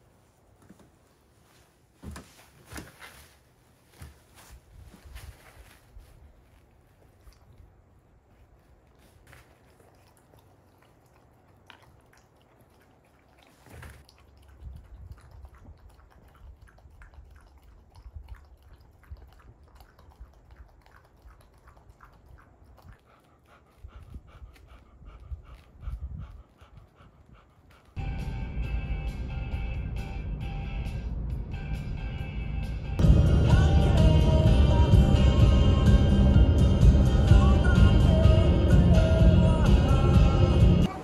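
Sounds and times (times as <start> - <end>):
soft handling thumps: 0.6 - 7.2
dog lapping wet food: 9.1 - 28.0
loud music: 28.0 - 40.9.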